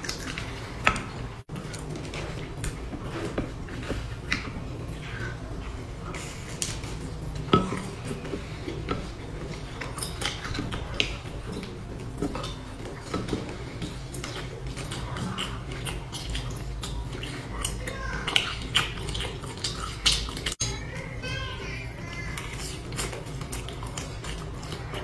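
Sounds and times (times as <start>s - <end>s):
biting and chewing: 0.0s - 25.0s.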